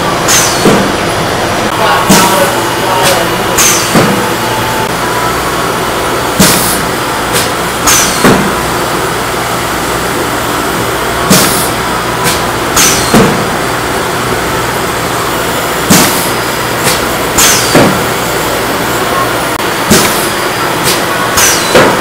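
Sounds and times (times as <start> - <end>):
machine running noise: 0.0 - 22.0
sharp metallic clacks: 6.4 - 8.4, 11.3 - 13.4, 15.9 - 17.9.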